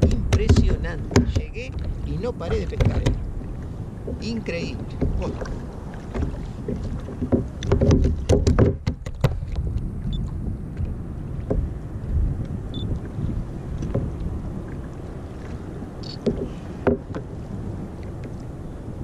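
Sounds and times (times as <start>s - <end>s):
low wind: 0.0s - 19.0s
water noise around a kayak: 0.0s - 19.0s.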